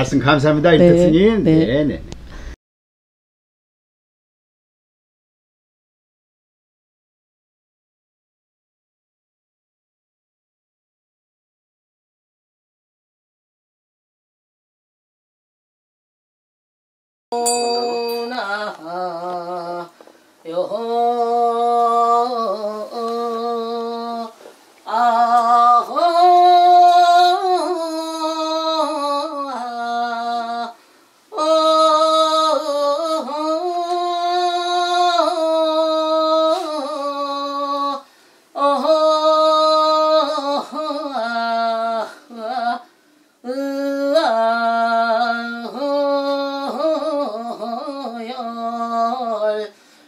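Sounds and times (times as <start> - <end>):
woman breathing: 2.2 - 2.6, 30.8 - 31.3, 38.0 - 38.6, 49.7 - 50.0
woman singing unaccompanied: 17.4 - 49.9.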